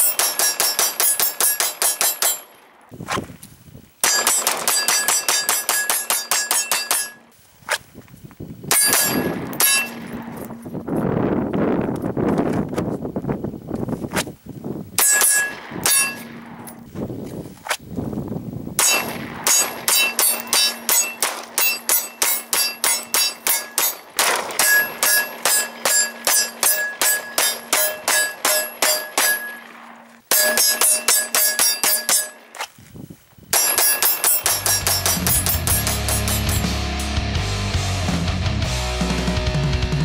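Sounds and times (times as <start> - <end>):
steel plate ringing clang: 0.0 - 2.6, 4.0 - 7.3, 8.7 - 10.6, 15.0 - 16.5, 18.8 - 32.5, 33.5 - 37.1
pistol shots: 0.0 - 2.8, 4.0 - 7.2, 8.7 - 10.4, 18.8 - 32.5, 33.5 - 36.4
rock music: 34.5 - 40.0.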